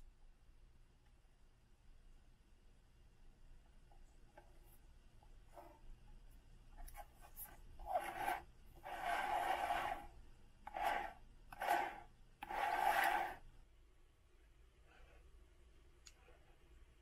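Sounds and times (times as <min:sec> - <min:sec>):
plastic disc grinding rasp: 0:07.9 - 0:10.1, 0:10.7 - 0:13.4.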